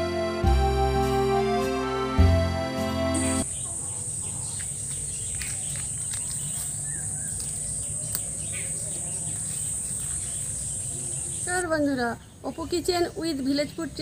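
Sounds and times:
insects chirring: 0:03.2 - 0:11.6.

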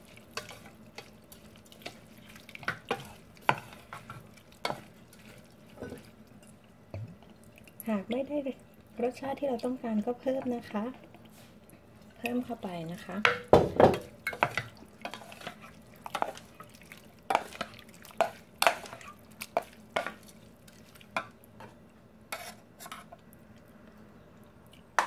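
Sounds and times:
spoon scraping metal bowl: 0:22.3 - 0:23.1.

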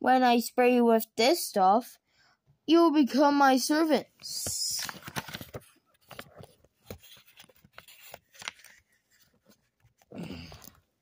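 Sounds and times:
paper pages rustling: 0:04.3 - 0:10.8.

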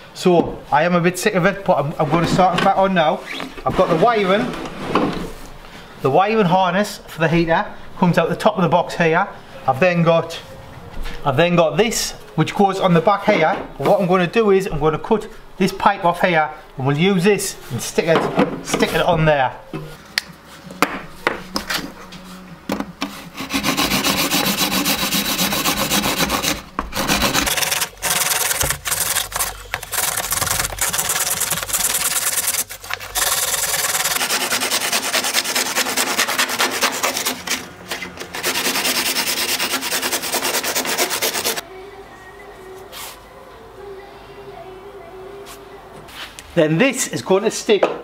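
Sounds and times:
handsaw cutting plastic: 0:23.0 - 0:41.6.

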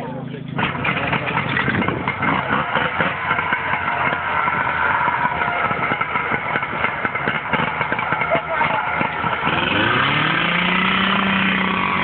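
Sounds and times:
pump engine running: 0:00.1 - 0:12.0.

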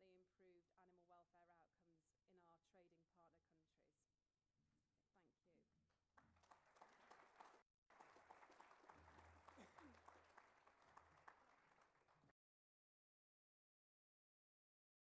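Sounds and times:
audience applauding: 0:06.2 - 0:12.4.

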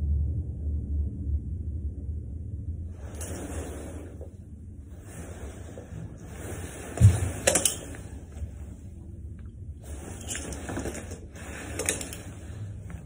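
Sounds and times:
cloth rustling: 0:03.0 - 0:13.0.

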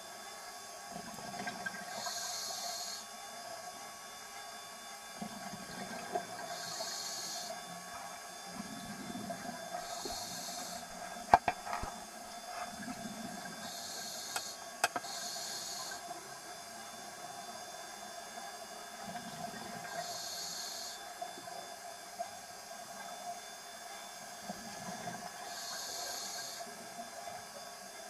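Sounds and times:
regulator hiss on inhale: 0:01.9 - 0:03.1, 0:06.4 - 0:07.7, 0:09.7 - 0:11.9, 0:13.6 - 0:16.2, 0:19.9 - 0:21.1, 0:25.4 - 0:26.8.

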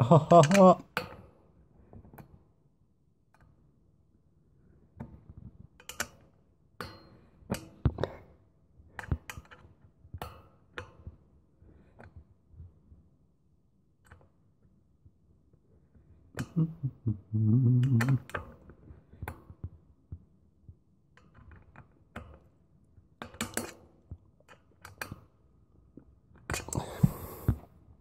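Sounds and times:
man grunting: 0:00.0 - 0:00.8, 0:16.6 - 0:18.2.

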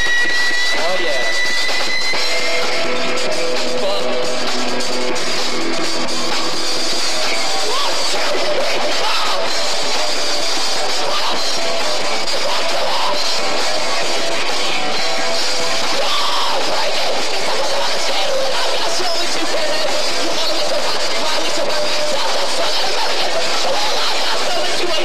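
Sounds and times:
live rock band playing: 0:00.0 - 0:25.0
shouted vocals: 0:07.3 - 0:25.0.

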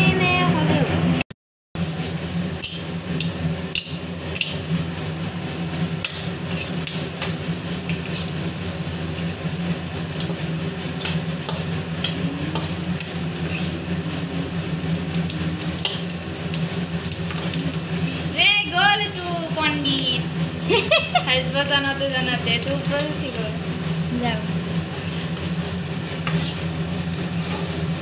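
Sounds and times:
extractor fan humming: 0:00.0 - 0:01.2, 0:01.8 - 0:28.0
shells sizzling in hot oil: 0:02.4 - 0:28.0
steel spoon scraping pan: 0:06.0 - 0:09.4, 0:10.2 - 0:14.0, 0:26.1 - 0:28.0.

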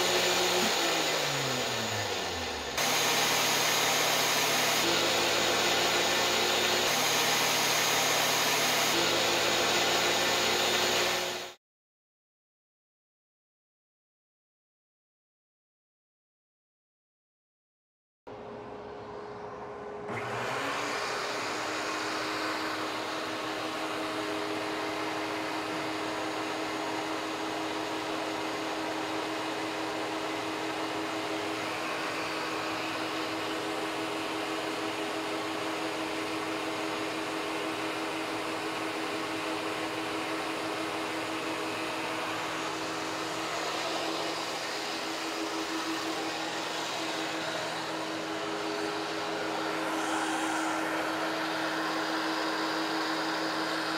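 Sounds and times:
thickness planer running: 0:00.0 - 0:11.6, 0:18.3 - 0:53.9.

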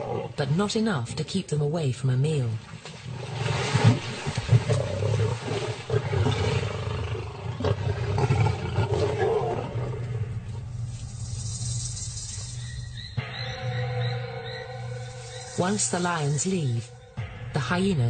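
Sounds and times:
lions growling and snarling: 0:00.0 - 0:00.4, 0:02.8 - 0:10.7.

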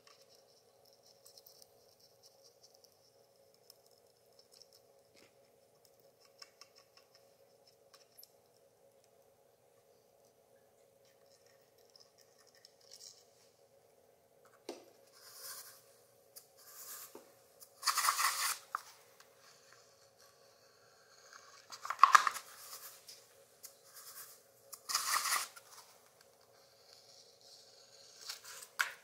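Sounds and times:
faint steady hum: 0:00.0 - 0:29.0
paper and sand rustling: 0:17.8 - 0:19.0.

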